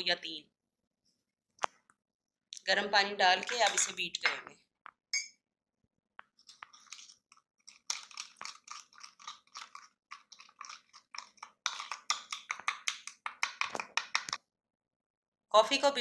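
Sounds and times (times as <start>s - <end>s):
metal spoon beating coffee in a bowl: 3.4s - 4.0s, 6.4s - 14.4s.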